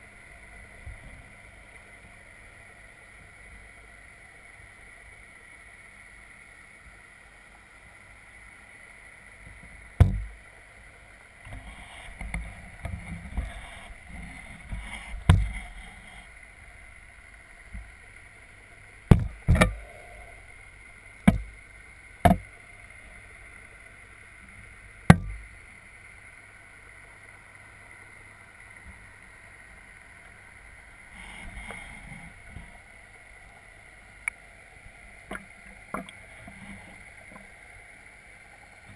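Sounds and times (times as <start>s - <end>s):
underwater hum: 0.0s - 38.9s
fish knocking on camera housing: 10.0s - 10.3s.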